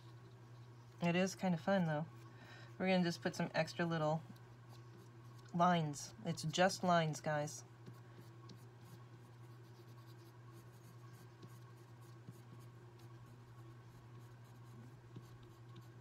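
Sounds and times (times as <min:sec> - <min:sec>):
steady low hum: 0:00.0 - 0:16.0
pencil scratching on paper: 0:07.8 - 0:16.0.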